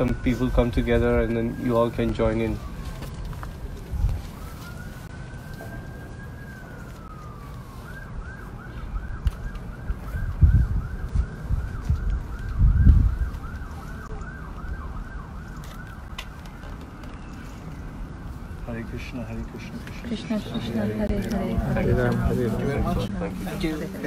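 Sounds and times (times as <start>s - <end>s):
emergency siren wailing and yelping: 0.0s - 24.0s
low rumbles on microphone: 9.9s - 13.4s.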